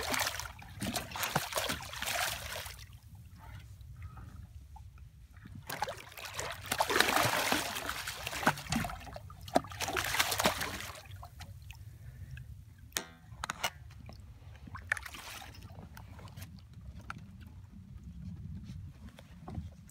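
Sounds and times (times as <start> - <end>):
fish splashing and thrashing: 0.0 - 3.0, 5.4 - 11.6, 14.6 - 17.0.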